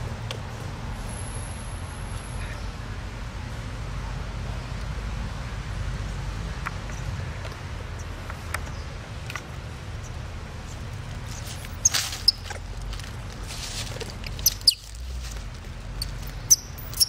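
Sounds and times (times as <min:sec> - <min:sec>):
high-pitched animal squeaks: 0:14.4 - 0:14.9, 0:16.5 - 0:17.0.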